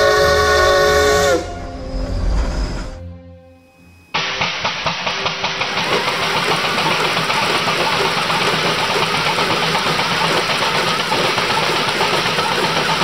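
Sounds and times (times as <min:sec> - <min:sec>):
model steam engine running: 0:04.2 - 0:13.0
steam hiss: 0:04.2 - 0:13.0.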